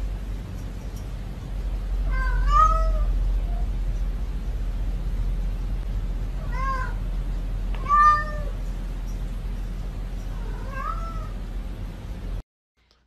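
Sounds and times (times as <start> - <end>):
steady low hum: 0.0 - 13.0
cat meowing: 2.0 - 3.7, 6.4 - 7.0, 7.8 - 8.6, 10.3 - 11.4.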